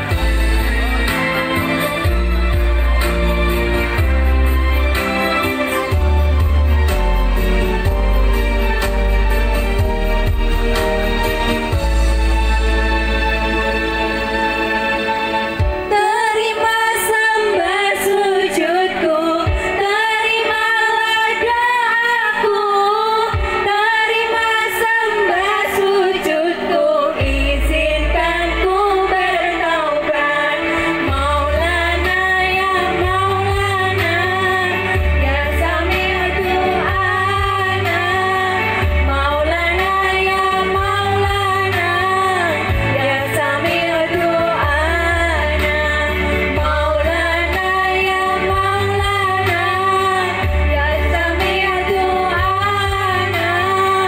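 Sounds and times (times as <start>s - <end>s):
amplified backing music: 0.0s - 54.0s
women singing into microphones: 15.6s - 54.0s.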